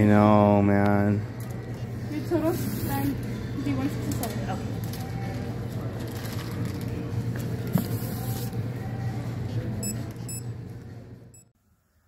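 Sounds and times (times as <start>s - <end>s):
short electronic beeps: 9.8s - 10.5s.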